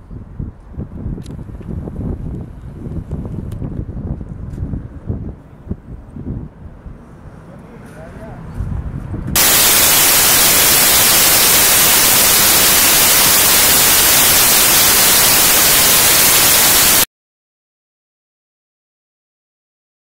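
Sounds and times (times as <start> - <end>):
loud static: 9.4 - 17.1.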